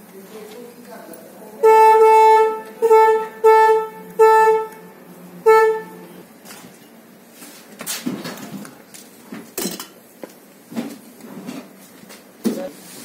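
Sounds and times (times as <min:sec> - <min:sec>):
vehicle horn honking: 0:01.6 - 0:06.3.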